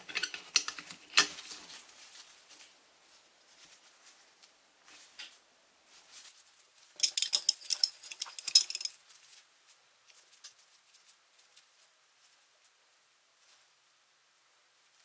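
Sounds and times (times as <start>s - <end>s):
small metal parts clinking: 7.0s - 9.0s.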